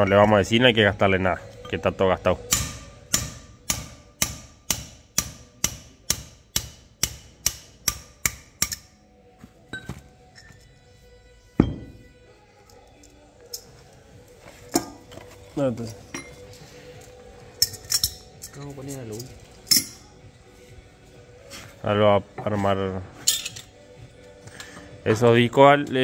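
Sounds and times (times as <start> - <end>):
steel bar hammering gear: 2.4 - 8.9
metal parts clinking: 15.8 - 20.1, 23.2 - 23.8.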